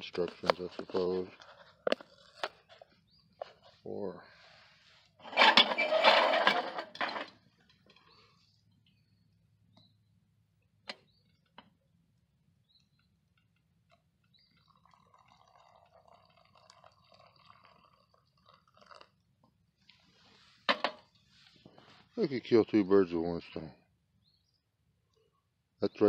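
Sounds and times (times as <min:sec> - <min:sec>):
liquid trickling into cup: 0:13.9 - 0:20.1.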